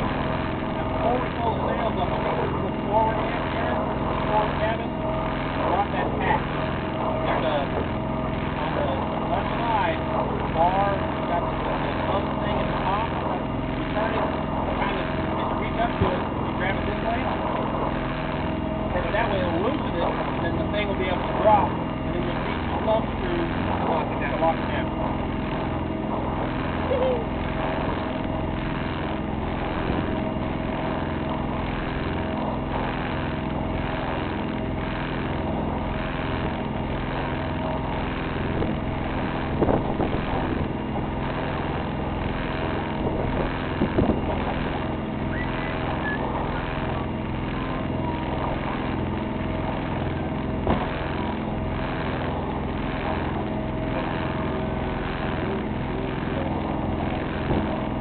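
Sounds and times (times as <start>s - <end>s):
boat engine running: 0.0s - 58.0s.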